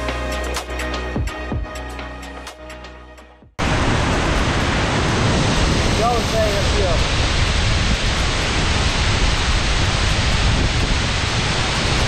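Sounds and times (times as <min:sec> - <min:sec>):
waterfall rushing: 0:03.6 - 0:12.0.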